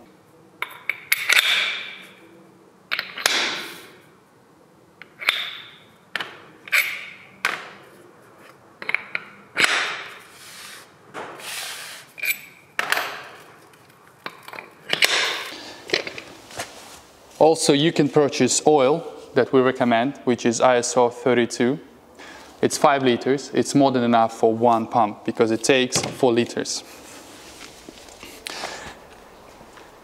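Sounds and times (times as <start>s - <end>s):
metal tubes clinking and knocking: 8.8s - 9.8s.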